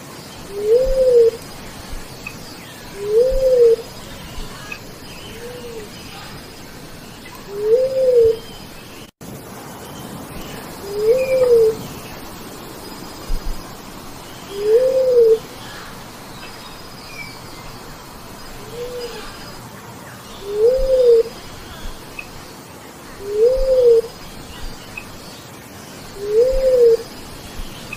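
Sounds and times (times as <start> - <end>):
dove cooing: 0.4 - 1.4, 2.9 - 4.7, 7.4 - 8.4, 10.9 - 11.8, 14.5 - 15.9, 20.4 - 22.0, 23.2 - 24.2, 26.2 - 27.1.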